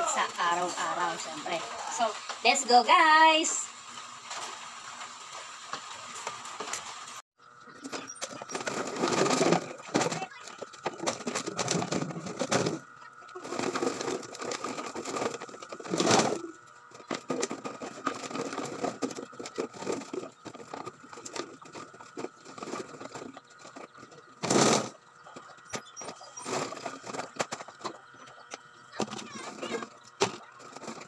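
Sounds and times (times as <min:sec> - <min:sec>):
plastic scrap rustling and clattering: 0:07.8 - 0:31.0.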